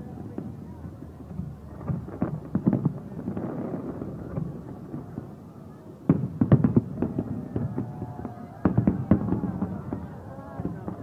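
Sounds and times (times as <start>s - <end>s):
fireworks bursting: 0.0s - 11.0s.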